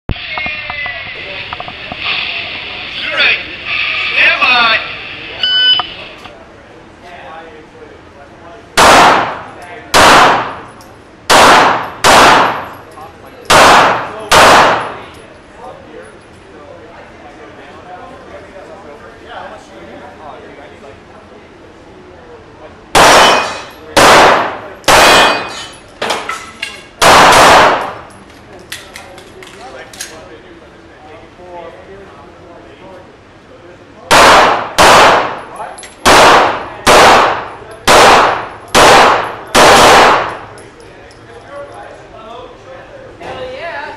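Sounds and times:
handgun shots echoing indoors: 8.8s - 15.2s, 23.0s - 26.3s, 27.0s - 28.1s, 34.1s - 40.6s.

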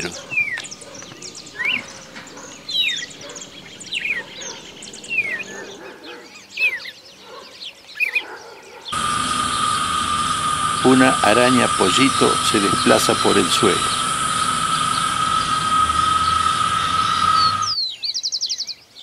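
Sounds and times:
birds whistling: 0.0s - 6.9s, 9.0s - 18.6s
constant whine: 9.0s - 17.8s
steady hiss: 9.0s - 17.8s.

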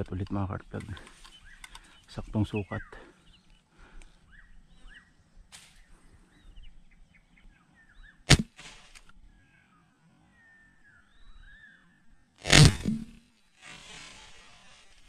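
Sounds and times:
faint bird chirps: 0.6s - 8.3s, 9.2s - 13.2s
sharp shot with hiss: 8.3s - 9.1s, 12.4s - 15.0s.

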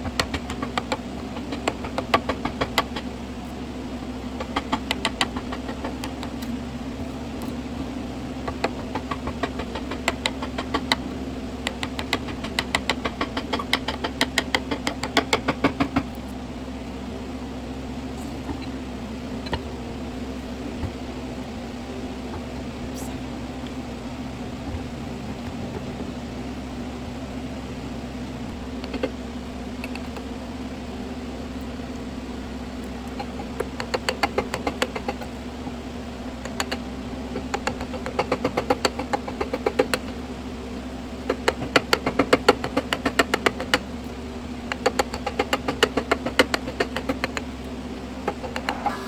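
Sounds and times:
hammer tapping chisel into wood: 0.0s - 3.1s, 4.4s - 6.4s, 8.5s - 11.0s, 11.6s - 16.1s, 33.2s - 35.2s
steady low hum: 0.0s - 49.0s.

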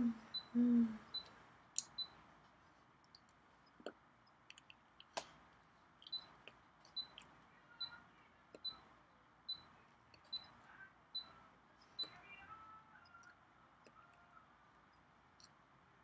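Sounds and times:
faint clicks and soft taps: 1.1s - 12.3s.

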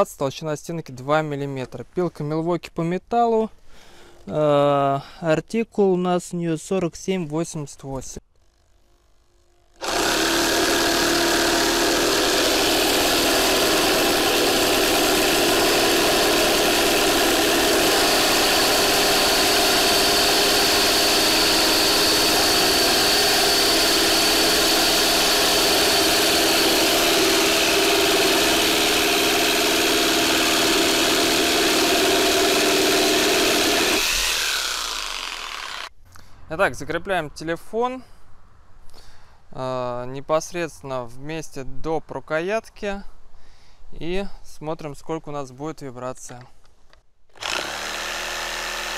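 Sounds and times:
reciprocating saw cutting metal: 9.7s - 35.9s, 47.4s - 48.9s.

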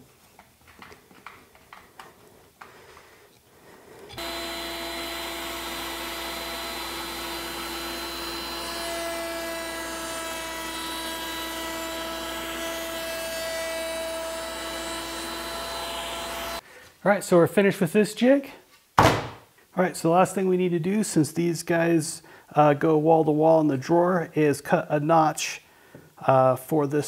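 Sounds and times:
router whining while trimming wood: 4.1s - 16.6s.

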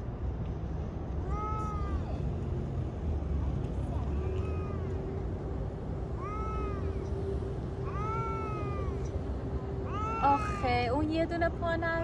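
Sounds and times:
cat meowing: 4.3s - 5.0s, 6.2s - 7.0s, 7.8s - 9.0s, 9.9s - 10.6s.

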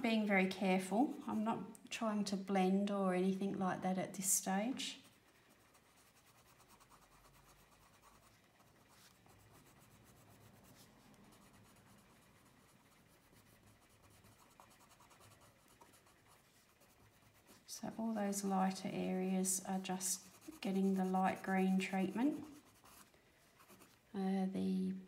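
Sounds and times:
coloured pencil scratching on paper: 5.0s - 24.0s.

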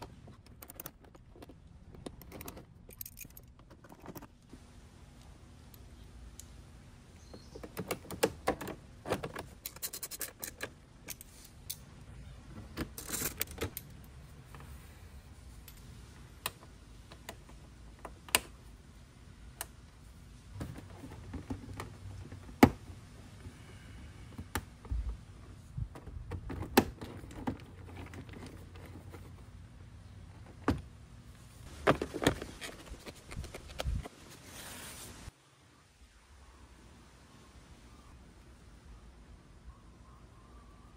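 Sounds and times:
metallic clicks and rattles: 0.0s - 4.3s, 7.6s - 11.8s.

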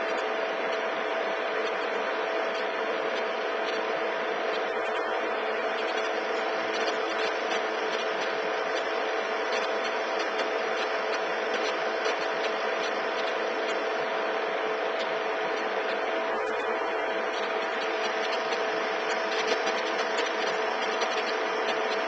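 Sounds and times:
mechanical whirring hum: 0.0s - 22.0s
faint irregular ticks: 5.7s - 14.0s, 17.3s - 22.0s.

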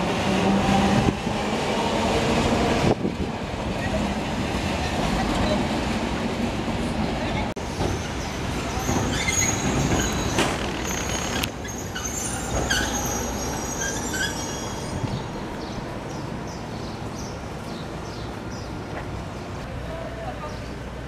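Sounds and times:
standing tram rumble: 0.0s - 21.0s
tram rolling and braking: 0.0s - 21.0s
high metallic squeals: 7.9s - 15.3s.

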